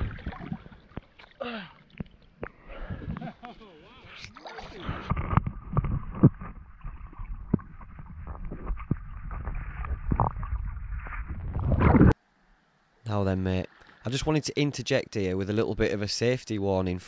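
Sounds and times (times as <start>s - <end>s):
underwater water sloshing: 0.0s - 3.4s, 4.0s - 12.2s.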